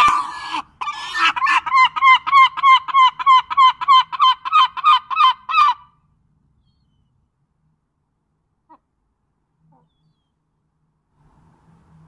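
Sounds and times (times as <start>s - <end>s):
gull calling: 0.0s - 6.0s, 9.6s - 10.4s.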